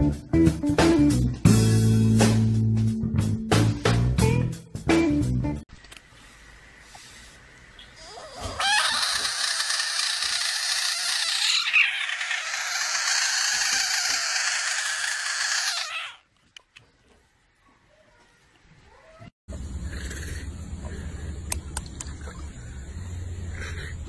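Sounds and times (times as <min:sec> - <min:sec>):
frog screaming: 0:08.0 - 0:16.3.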